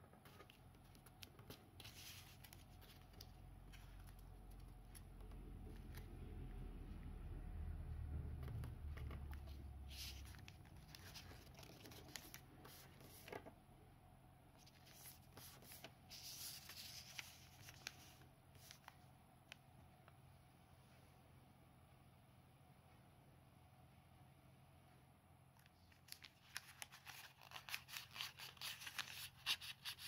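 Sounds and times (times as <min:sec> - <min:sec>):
paper being folded: 0:00.2 - 0:06.1, 0:08.4 - 0:13.4, 0:14.6 - 0:19.0, 0:25.9 - 0:30.0.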